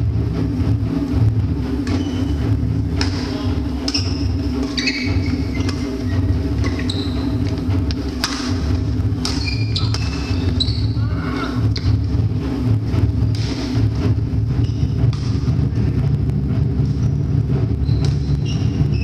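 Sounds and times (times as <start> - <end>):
low hum in hall: 0.0 - 19.0
racket hitting shuttlecock: 1.8 - 2.2, 2.9 - 5.9, 7.5 - 10.6, 11.6 - 12.0, 13.2 - 13.7, 15.0 - 15.5
sneakers squeaking on court: 1.9 - 2.4, 3.8 - 7.6, 9.2 - 11.0.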